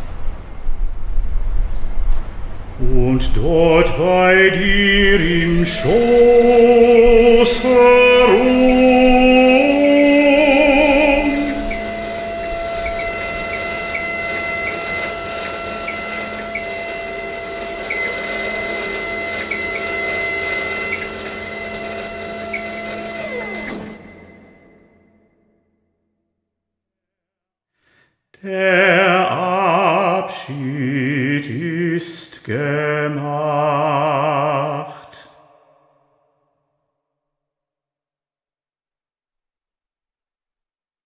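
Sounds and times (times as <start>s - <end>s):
man singing with vibrato: 2.8s - 23.7s, 28.4s - 35.8s.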